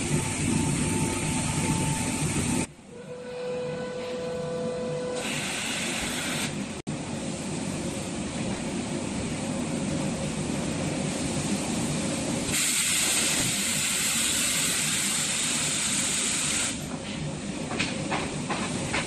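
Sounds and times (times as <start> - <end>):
loud hiss of air: 5.2 - 6.7, 10.7 - 16.9.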